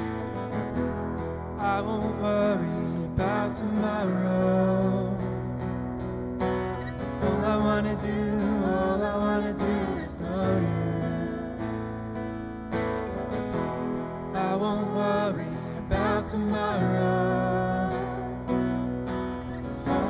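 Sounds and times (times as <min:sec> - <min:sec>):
acoustic guitar strumming: 0:00.0 - 0:20.0
woman singing worship song: 0:14.3 - 0:18.8, 0:19.4 - 0:20.0.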